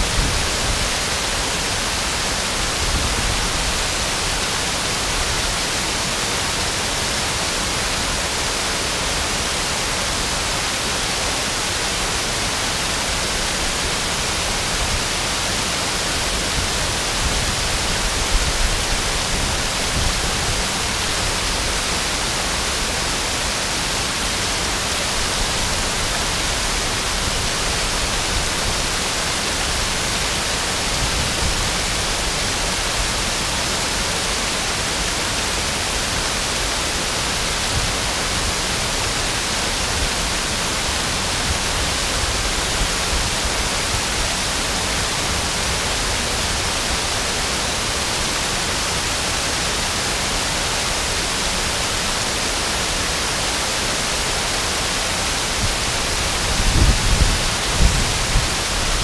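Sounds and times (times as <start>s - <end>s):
waterfall splashing onto rocks: 0.0s - 59.0s.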